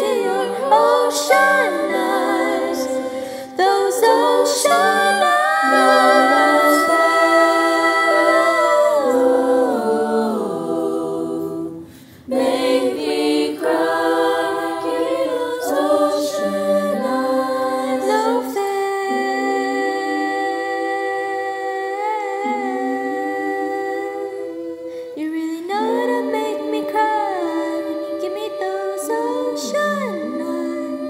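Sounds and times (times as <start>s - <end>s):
choir singing a cappella: 0.0s - 31.0s.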